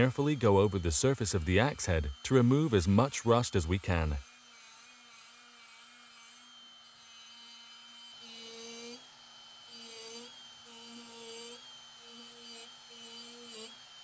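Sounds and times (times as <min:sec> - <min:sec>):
rotary tool wire wheel whining: 0:00.0 - 0:09.1.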